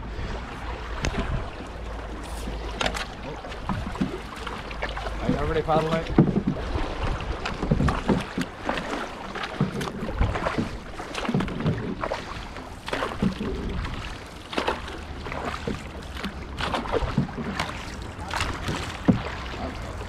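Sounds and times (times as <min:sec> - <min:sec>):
wind on microphone: 0:00.0 - 0:01.8
paddles splashing in water: 0:00.0 - 0:20.0.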